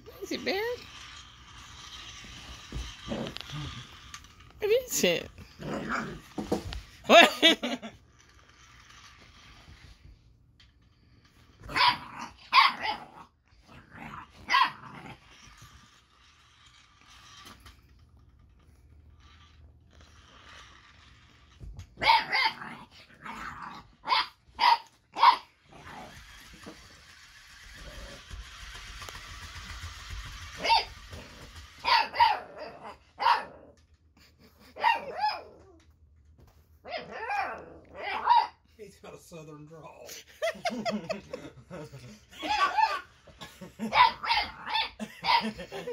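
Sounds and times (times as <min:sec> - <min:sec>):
puppy barking: 0:11.7 - 0:13.2, 0:14.4 - 0:14.8, 0:22.0 - 0:22.7, 0:24.0 - 0:25.5, 0:30.6 - 0:30.9, 0:31.8 - 0:33.6, 0:34.8 - 0:35.6, 0:36.8 - 0:38.6, 0:43.9 - 0:45.6.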